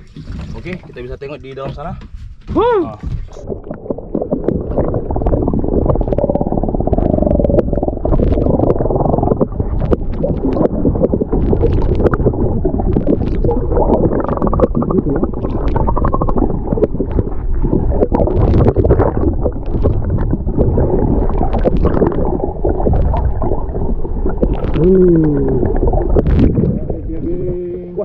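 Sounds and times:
underwater gurgling and rumbling: 0.0s - 2.4s, 3.0s - 28.0s
small clicks and crackles: 7.0s - 22.2s.

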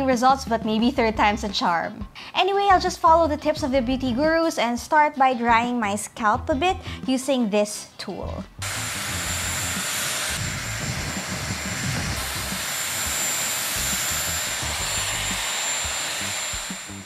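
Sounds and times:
hair dryer blowing air: 8.6s - 17.0s.

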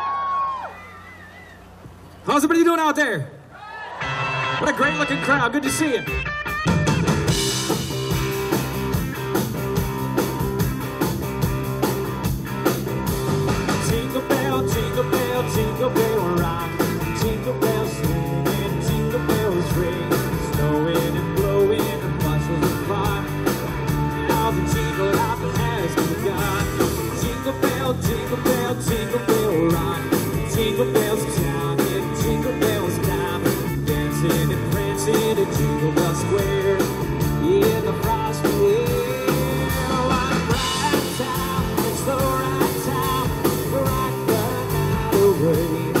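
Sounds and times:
electric guitar: 3.8s - 46.0s
drum kit with steady beat: 6.0s - 46.0s
man singing into microphone: 13.8s - 23.5s, 24.2s - 46.0s.

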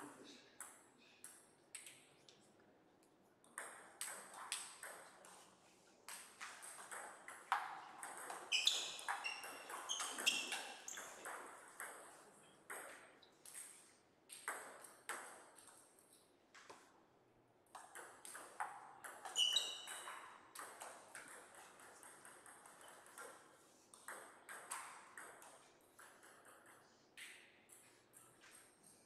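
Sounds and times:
table tennis ball hits: 6.1s - 15.7s, 17.7s - 28.7s
shoe squeaks on floor: 8.4s - 11.2s, 19.2s - 20.2s.

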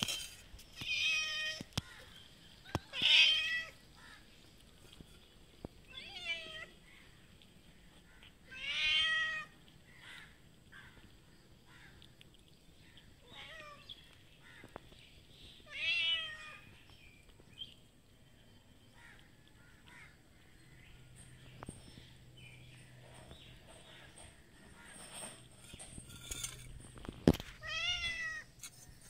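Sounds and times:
cats meowing: 2.6s - 3.8s, 5.8s - 6.8s, 8.2s - 10.3s, 13.2s - 14.0s, 15.6s - 16.8s, 27.5s - 28.6s.

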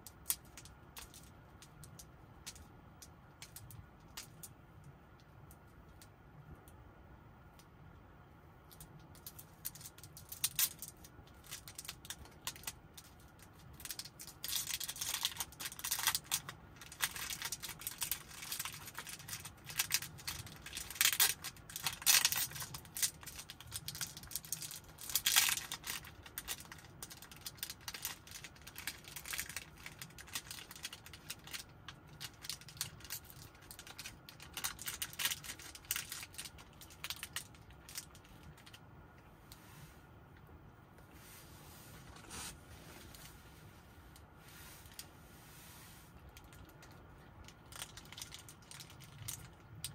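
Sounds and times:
snack wrapper crinkling and tearing: 9.2s - 38.8s, 46.4s - 49.9s.

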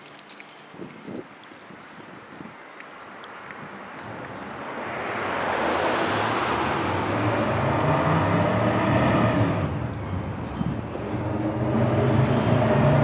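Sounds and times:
vehicle passing close by: 4.8s - 13.0s.

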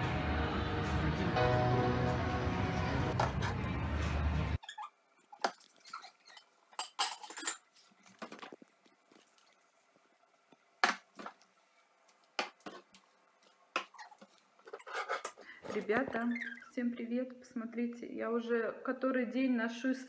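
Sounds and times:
dishes and jars clinking: 6.3s - 7.7s.

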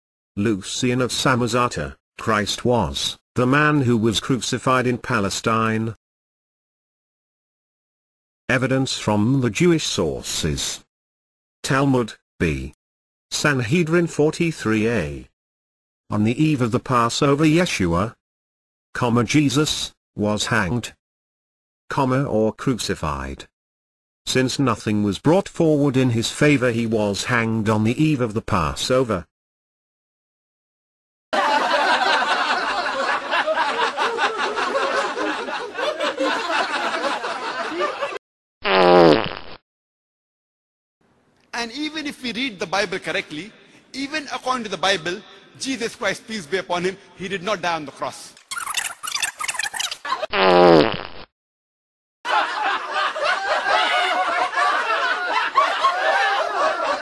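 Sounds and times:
audience laughing: 31.4s - 38.2s, 50.0s - 50.3s, 52.3s - 57.0s.

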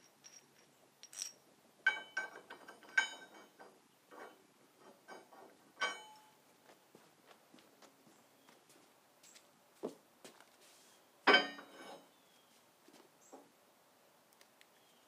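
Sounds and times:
metal tool clinking on steel frame: 0.0s - 4.4s, 5.0s - 6.4s, 11.3s - 12.0s.

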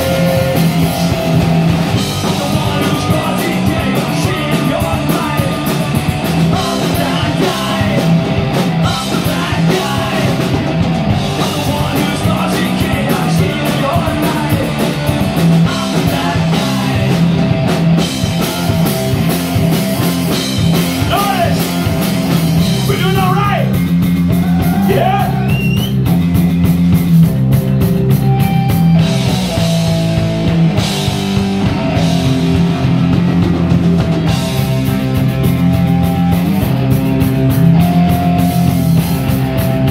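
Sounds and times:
singer's lead vocal: 0.0s - 1.4s, 2.0s - 17.6s, 21.0s - 22.0s, 24.4s - 25.7s
bass guitar: 0.0s - 39.9s
distorted electric guitar: 0.0s - 39.9s
drum kit: 0.0s - 39.9s.

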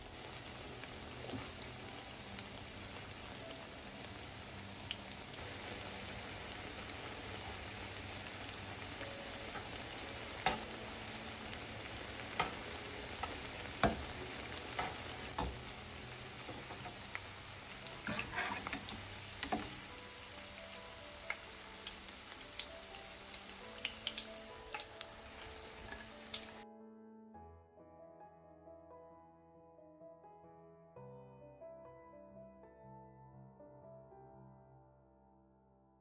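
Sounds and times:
fritters sizzling in hot oil: 0.0s - 26.6s
metal spatula tapping pan: 10.4s - 10.8s, 12.3s - 14.2s, 14.8s - 15.6s, 17.9s - 19.8s.

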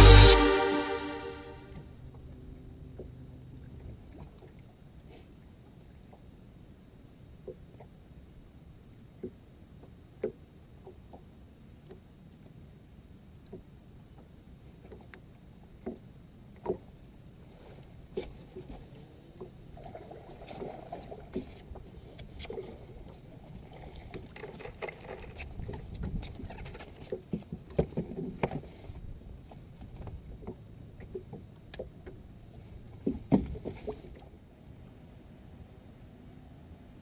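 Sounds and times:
wind and water wash: 10.8s - 35.8s
knocks and clicks on a boat: 13.5s - 14.3s, 25.6s - 28.8s, 29.5s - 32.3s, 32.9s - 34.2s.

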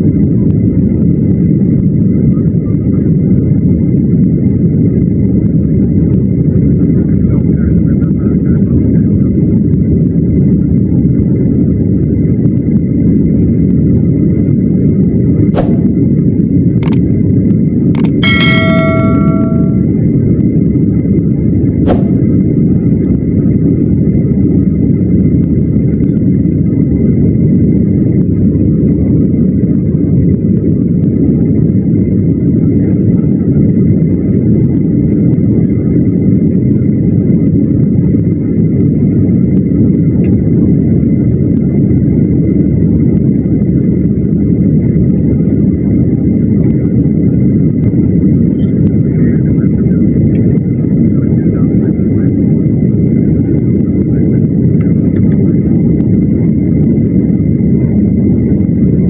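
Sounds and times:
airliner cabin rumble: 0.0s - 59.0s
faint high whine: 18.0s - 20.1s.

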